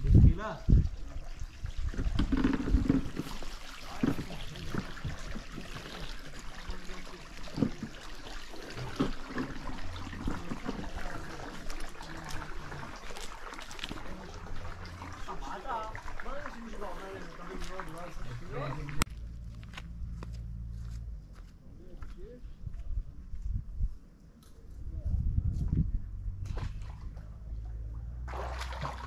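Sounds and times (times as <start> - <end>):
stream water trickling: 0.0 - 20.2, 26.4 - 29.0.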